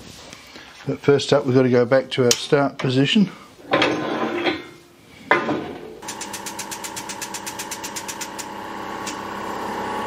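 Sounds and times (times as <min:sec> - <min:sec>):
hydraulic pump pulsing: 0:06.0 - 0:10.0.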